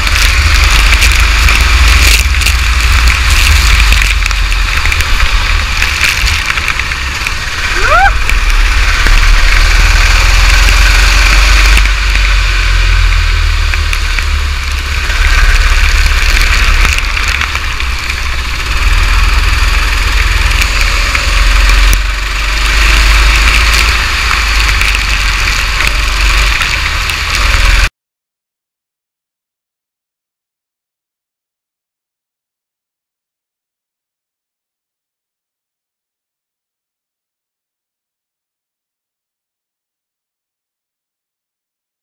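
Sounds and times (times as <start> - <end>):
kart engine running: 0.0 - 27.9
wind and rain on microphone: 0.0 - 27.9.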